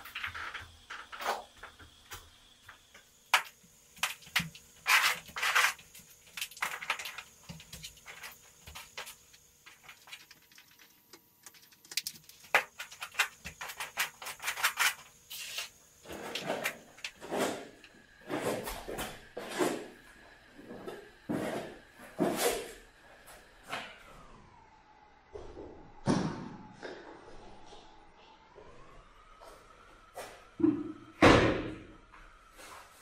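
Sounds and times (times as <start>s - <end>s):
paint scraper scraping canvas: 3.4s - 10.3s, 12.4s - 20.0s.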